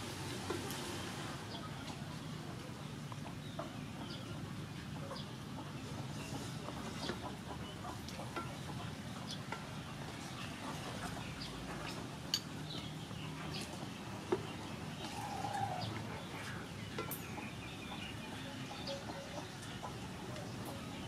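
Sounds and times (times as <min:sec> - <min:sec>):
steady background hum: 0:00.0 - 0:21.0
chicken clucking: 0:14.4 - 0:21.0.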